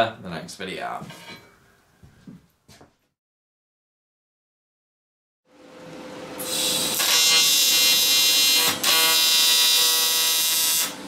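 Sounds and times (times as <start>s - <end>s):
welding arc buzzing: 6.4s - 11.0s.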